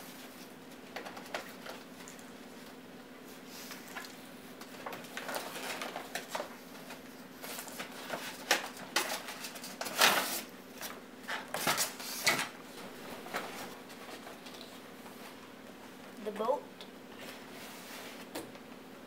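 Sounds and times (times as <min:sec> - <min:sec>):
cardboard and foam rustling: 0:04.7 - 0:14.8.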